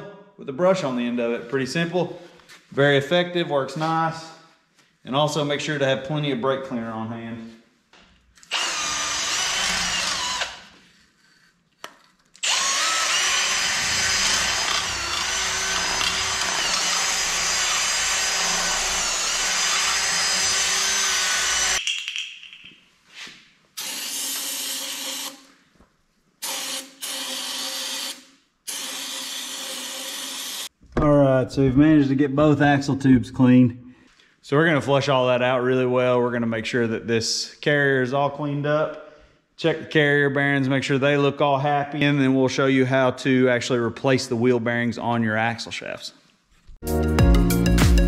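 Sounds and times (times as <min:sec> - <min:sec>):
drill spinning wire brush: 0:08.4 - 0:11.5, 0:12.4 - 0:21.8, 0:23.8 - 0:25.5, 0:26.4 - 0:30.7.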